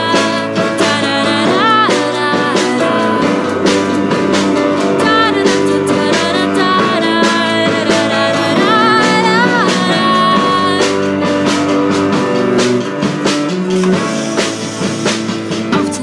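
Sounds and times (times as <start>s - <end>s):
woman singing: 0.0s - 11.5s, 15.7s - 16.0s
drum hits: 0.0s - 16.0s
guitar: 0.0s - 16.0s.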